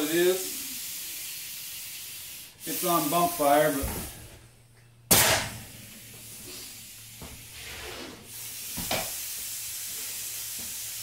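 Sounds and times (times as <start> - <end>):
nail gun firing into wood: 5.1 - 5.5.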